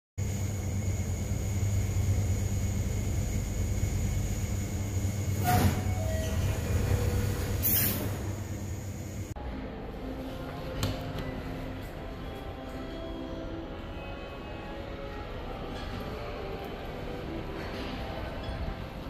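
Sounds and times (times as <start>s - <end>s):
low mechanical rumble: 0.2s - 9.4s.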